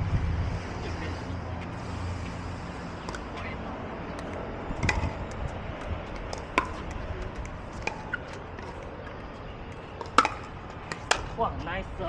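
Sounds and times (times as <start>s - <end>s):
paddles hitting plastic ball: 10.0s - 11.3s.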